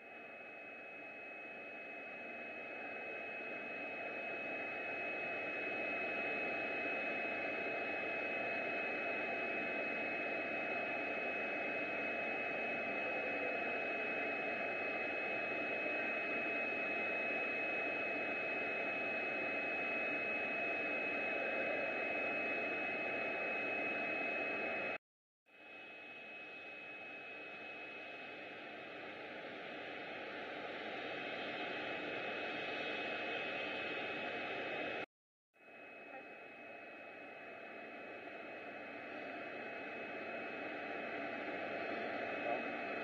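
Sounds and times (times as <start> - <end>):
high-pitched whine: 25.8 - 35.1, 35.7 - 43.0.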